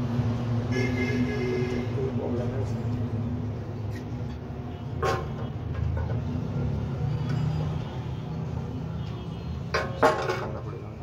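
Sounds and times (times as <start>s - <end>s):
sharp metallic knocks: 4.9s - 6.3s, 9.7s - 10.8s.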